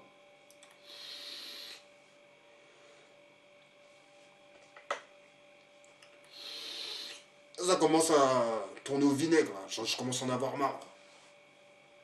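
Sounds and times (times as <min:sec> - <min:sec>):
faint steady hum: 0:00.0 - 0:12.0
breathy hiss of e-cigarette puff: 0:00.7 - 0:01.9, 0:06.2 - 0:07.3.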